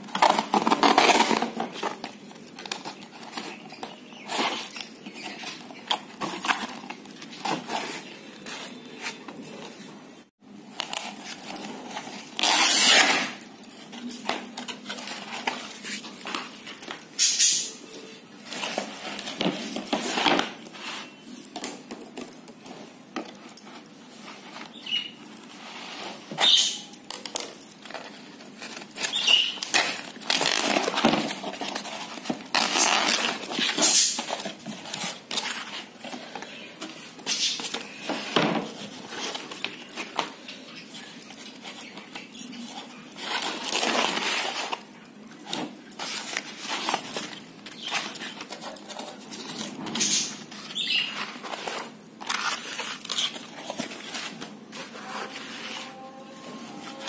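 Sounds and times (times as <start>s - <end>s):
canvas ripping and tearing: 12.2s - 13.4s, 32.4s - 34.2s.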